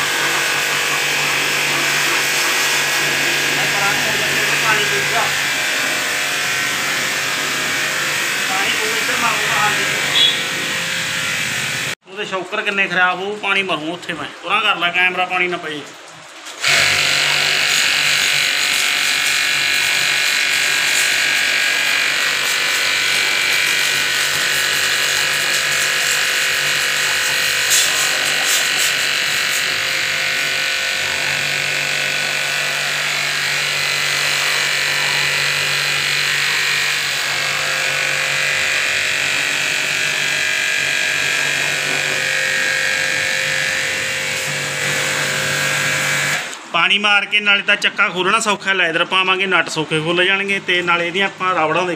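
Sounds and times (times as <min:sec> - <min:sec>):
pressure washer motor hum: 0:00.0 - 0:14.2, 0:15.2 - 0:46.8
water jet hissing: 0:00.0 - 0:47.0.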